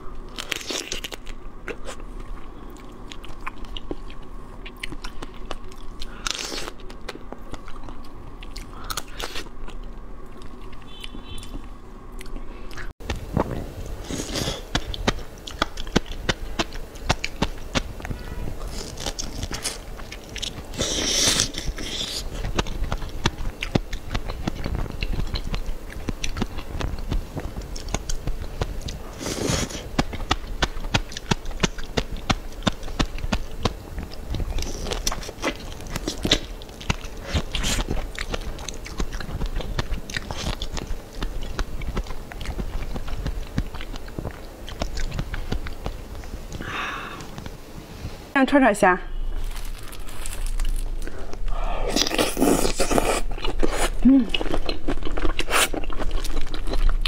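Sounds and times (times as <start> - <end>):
wet biting and chewing clicks: 0.4 - 17.9, 18.6 - 46.6, 50.5 - 57.0
mouth sounds of eating: 50.5 - 57.0.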